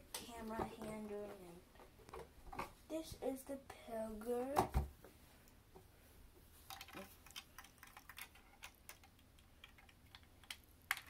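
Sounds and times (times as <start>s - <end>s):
plastic bricks clicking: 6.7s - 11.0s.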